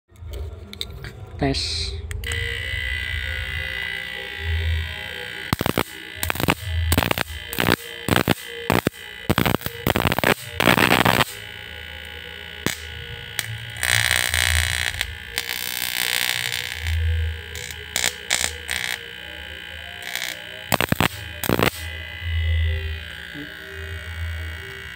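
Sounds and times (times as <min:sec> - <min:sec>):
steady electrical whine: 0:00.2 - 0:24.9
harsh electrical buzz: 0:02.0 - 0:24.9
crackling spark snaps: 0:05.4 - 0:19.1, 0:20.0 - 0:21.9.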